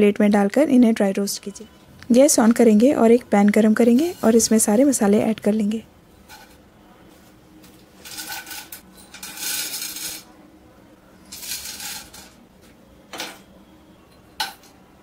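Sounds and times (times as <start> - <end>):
spices rattling onto metal pan: 11.3 - 12.4.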